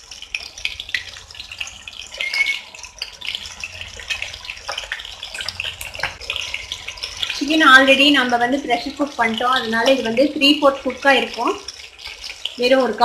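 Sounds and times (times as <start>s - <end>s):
oil sizzling while deep-frying: 0.0s - 13.0s.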